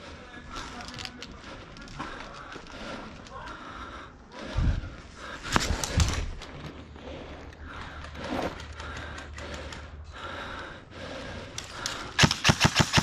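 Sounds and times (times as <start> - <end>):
faint clicks: 0.6 - 3.9.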